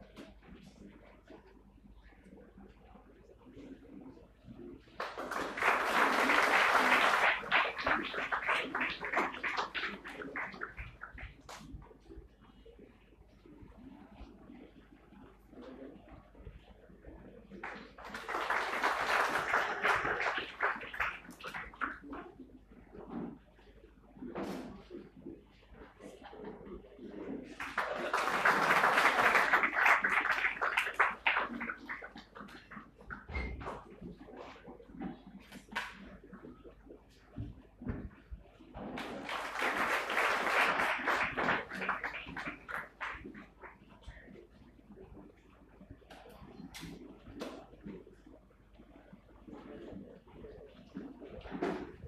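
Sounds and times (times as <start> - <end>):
audience applauding: 5.0 - 11.2, 17.6 - 22.0, 27.6 - 32.3, 39.0 - 43.5.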